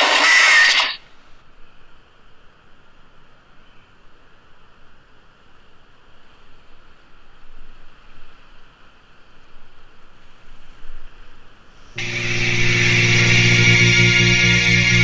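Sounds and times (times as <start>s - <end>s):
loud music: 12.0s - 15.0s.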